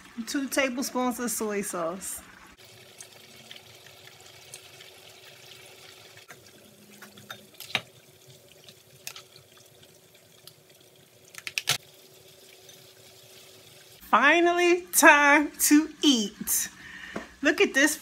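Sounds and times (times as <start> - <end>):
faint sizzling in frying pan: 0.0 - 18.0.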